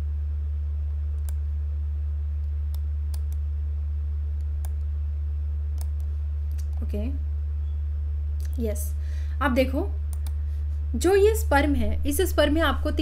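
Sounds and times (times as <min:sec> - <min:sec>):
low electrical hum: 0:00.0 - 0:13.0
small sharp clicks: 0:01.1 - 0:01.4, 0:02.4 - 0:03.4, 0:05.7 - 0:06.8, 0:10.1 - 0:10.4.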